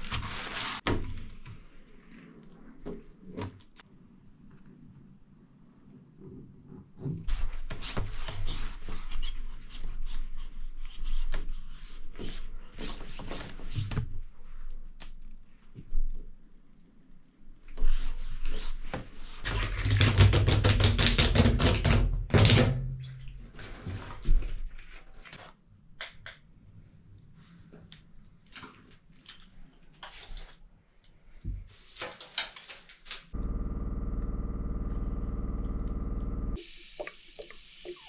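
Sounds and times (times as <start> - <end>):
steady hum: 33.4 - 36.6.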